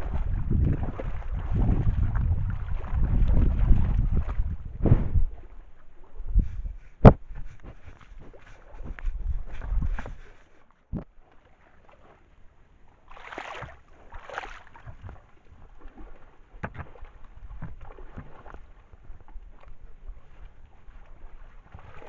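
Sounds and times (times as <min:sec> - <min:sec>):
small splashes and knocks: 0:00.0 - 0:06.0, 0:13.0 - 0:22.0
animal wading and splashing water: 0:00.0 - 0:22.0
thump on camera: 0:04.8 - 0:05.3, 0:07.0 - 0:07.3.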